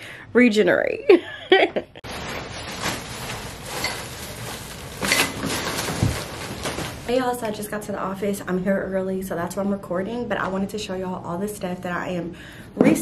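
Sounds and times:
plastic bags rustling: 2.0s - 8.2s.

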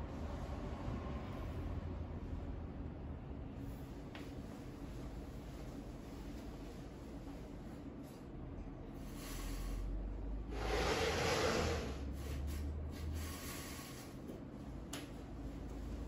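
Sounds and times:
soft rubbing and rustling: 3.8s - 8.4s.

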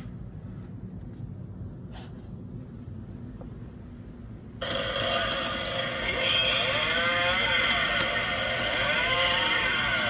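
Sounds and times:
recorded chainsaw engine revving: 4.6s - 10.0s.

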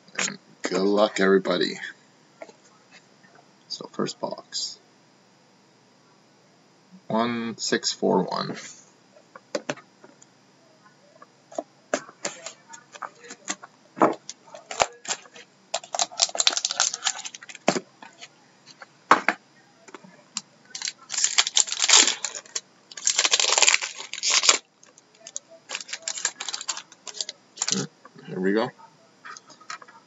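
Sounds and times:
foil pack crinkling and tearing: 14.6s - 18.3s, 20.8s - 27.9s.

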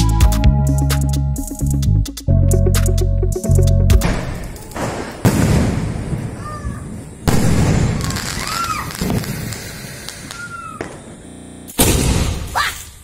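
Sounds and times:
firework bangs: 4.0s - 12.6s
firework crackle: 4.1s - 12.6s.

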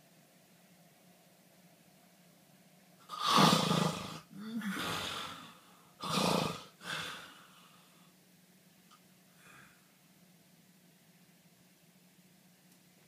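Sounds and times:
person snoring loudly: 3.1s - 7.4s.

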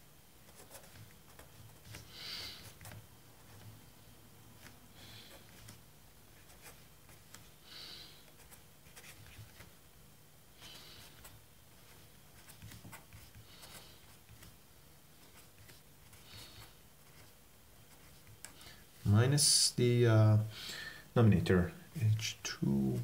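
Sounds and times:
pen scratching on paper: 0.5s - 3.7s.

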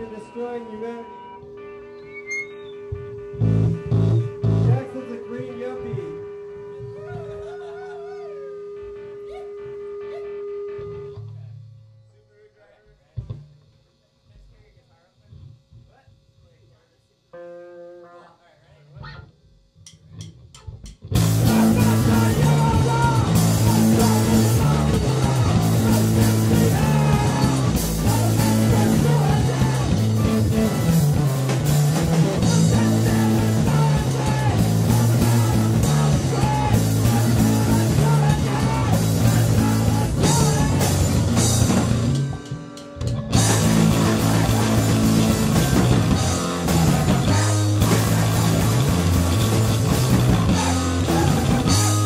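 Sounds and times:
rock band playing live: 0.0s - 7.5s, 21.0s - 52.0s.

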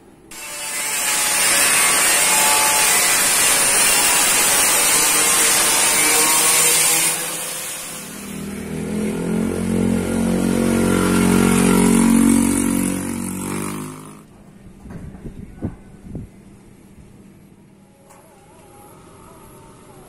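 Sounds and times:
loud hiss: 0.3s - 8.6s
motor vehicle passing by: 8.1s - 14.3s.

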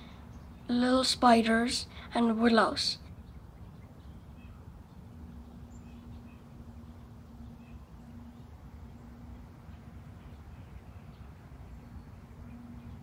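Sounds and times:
faint steady hum: 0.0s - 13.0s
low steady rumble: 0.0s - 13.0s.

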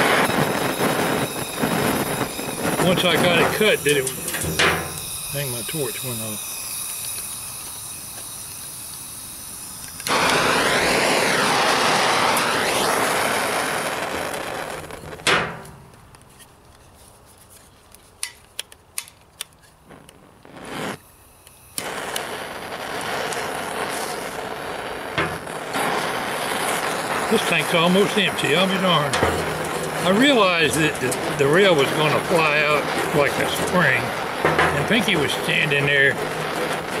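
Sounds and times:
torch cutting out with pop: 0.0s - 9.0s, 9.6s - 16.0s, 18.3s - 37.0s
propane torch flame rushing: 0.0s - 15.7s, 19.7s - 37.0s
torch igniter clicks: 9.6s - 11.4s, 18.2s - 20.6s, 21.4s - 24.4s.

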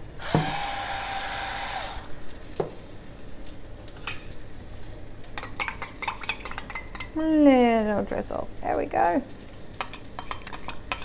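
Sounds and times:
electric pepper mill grinding: 0.0s - 2.1s.

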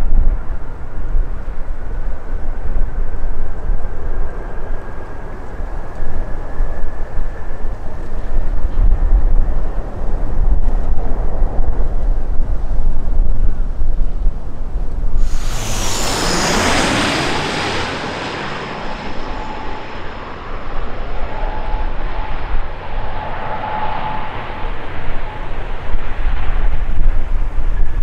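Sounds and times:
high jet whine: 15.2s - 26.6s
jet airliner passing overhead: 15.2s - 28.0s.

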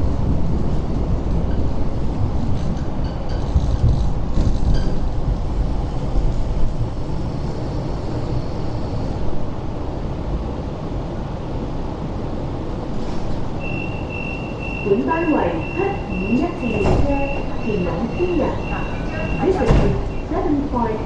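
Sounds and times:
light rail vehicle rumble: 0.0s - 21.0s
faint high whine: 13.6s - 20.3s.

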